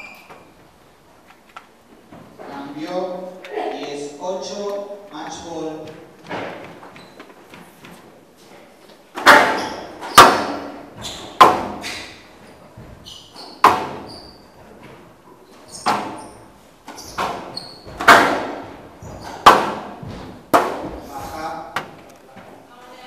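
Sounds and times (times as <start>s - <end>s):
shoes squeaking on court: 0.0s - 0.6s, 5.2s - 8.0s, 11.0s - 18.1s, 18.9s - 20.4s
squash ball cracks: 17.2s - 20.9s.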